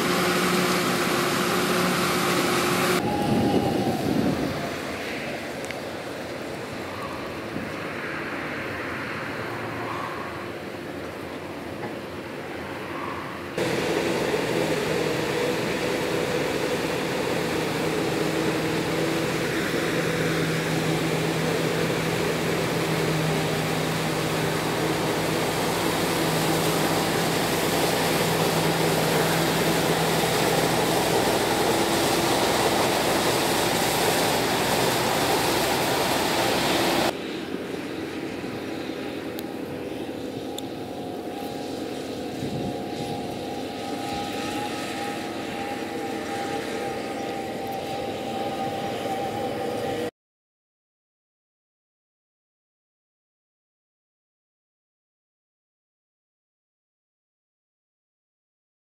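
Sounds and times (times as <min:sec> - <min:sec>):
tractor pulling a wagon: 0:00.0 - 0:03.5, 0:13.6 - 0:39.8
forage harvester droning: 0:00.0 - 0:50.1.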